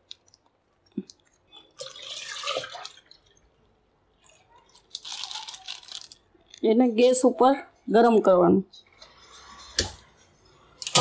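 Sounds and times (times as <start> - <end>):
milk pouring into steel pot: 1.5 - 3.6.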